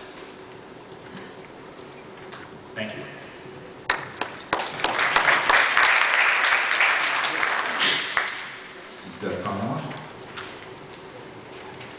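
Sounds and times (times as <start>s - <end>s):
audience applauding: 3.9s - 8.8s.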